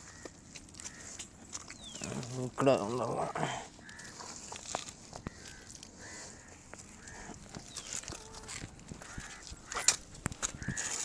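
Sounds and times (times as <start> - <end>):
bird chirping: 1.7 - 2.3, 7.0 - 8.5.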